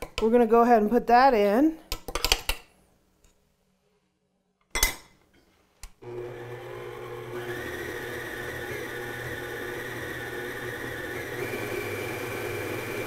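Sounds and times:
electric stand mixer motor running: 0:06.0 - 0:13.0.

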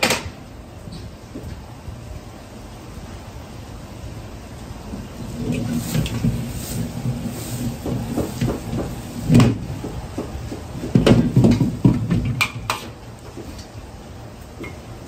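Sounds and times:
gas burner rushing: 0:04.0 - 0:15.0
wok knocking and scraping: 0:05.5 - 0:13.0.

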